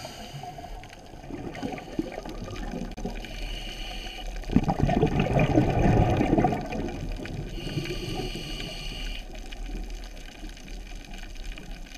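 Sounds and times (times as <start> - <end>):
high hiss of inhale: 0.0 - 1.0, 3.2 - 4.5, 7.5 - 9.4
regulator bubbles rumbling: 1.0 - 3.3, 4.4 - 8.3.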